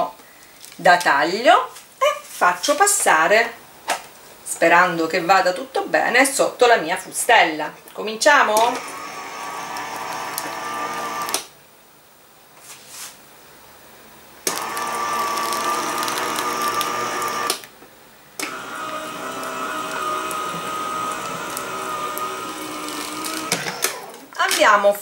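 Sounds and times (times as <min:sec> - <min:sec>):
die-cutting machine motor whine: 0:08.6 - 0:11.4, 0:14.5 - 0:17.6, 0:18.4 - 0:24.4.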